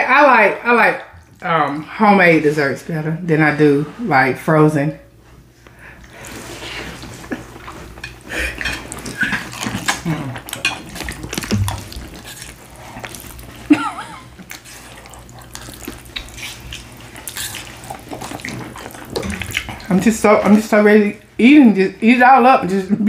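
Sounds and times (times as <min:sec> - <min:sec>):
slurping and chewing noodles: 0:06.0 - 0:19.9.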